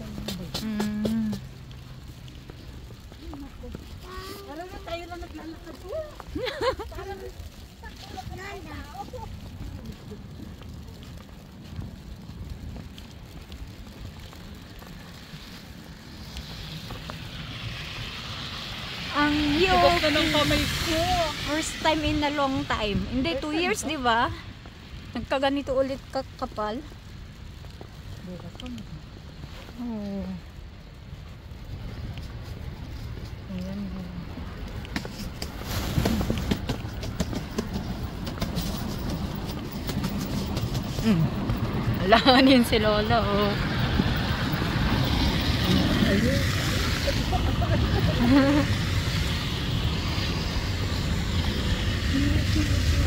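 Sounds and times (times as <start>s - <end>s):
car tyres hissing on snow: 0.0s - 30.4s, 31.0s - 53.0s
wind rumble on microphone: 0.0s - 53.0s
footsteps on snow: 31.8s - 42.8s.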